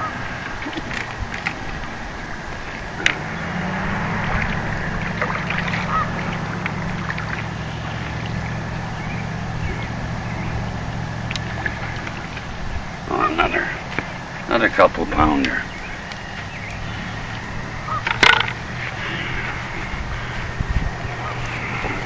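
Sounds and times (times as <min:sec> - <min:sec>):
motor engine droning: 0:00.0 - 0:22.0
faint chirps and ticks: 0:05.5 - 0:20.8.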